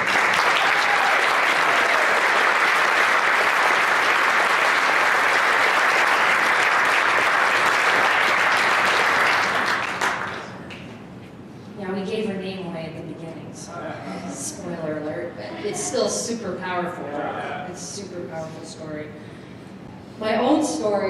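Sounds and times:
crowd clapping: 0:00.0 - 0:11.0.

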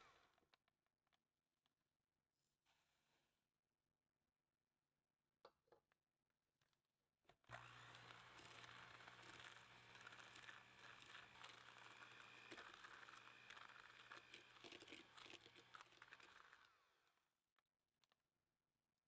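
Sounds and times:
electric hand mixer running: 0:07.5 - 0:17.2
beaters scraping in bowl: 0:08.0 - 0:16.7.

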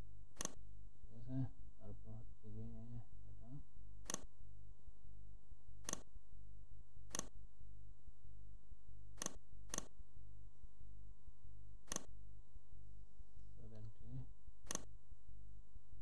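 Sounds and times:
low electrical hum: 0:00.0 - 0:16.0
mouse button clicking: 0:04.0 - 0:04.3, 0:05.8 - 0:06.1, 0:07.1 - 0:07.3, 0:09.2 - 0:09.9, 0:11.9 - 0:12.1, 0:14.7 - 0:14.9.

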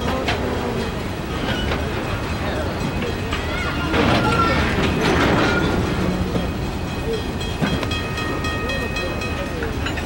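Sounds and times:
train wheels rumbling on track: 0:00.0 - 0:10.0
wheels clacking over rail joints: 0:00.0 - 0:10.0
high wheel squeal: 0:03.1 - 0:09.6.

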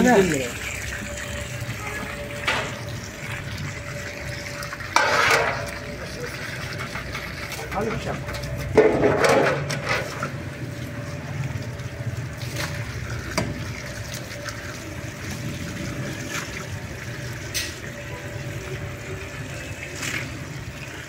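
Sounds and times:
water running from a hose: 0:00.0 - 0:21.0
steel ladle clinking on metal trays: 0:04.9 - 0:06.0.

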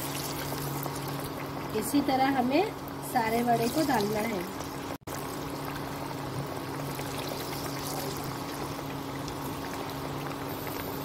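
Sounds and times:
food sizzling in deep oil: 0:00.0 - 0:11.0.

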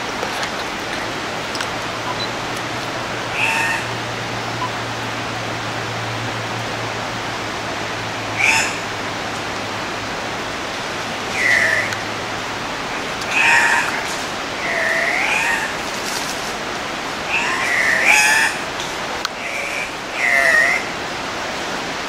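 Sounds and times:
steady hiss: 0:00.0 - 0:22.0
harsh bird calls: 0:02.0 - 0:04.8, 0:08.4 - 0:08.9, 0:11.2 - 0:12.1, 0:13.0 - 0:16.0.

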